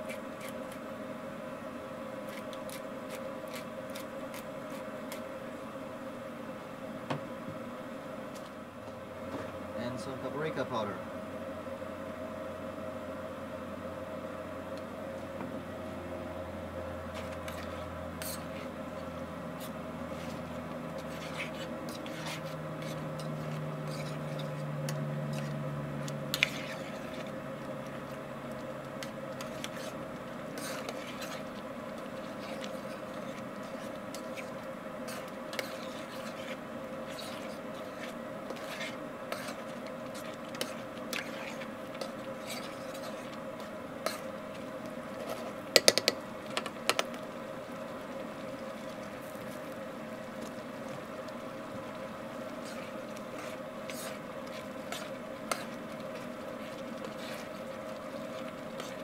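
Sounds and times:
steady hum: 0.0s - 59.0s
sauce simmering: 11.2s - 59.0s
utensil scraping a pan: 17.1s - 25.6s, 26.3s - 27.4s, 29.0s - 44.3s, 52.6s - 59.0s.

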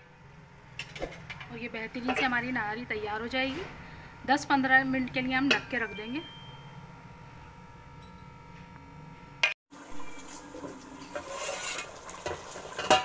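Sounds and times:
spoon scraping in pot: 10.0s - 13.0s
metal lid on cooking pot: 11.0s - 13.0s.

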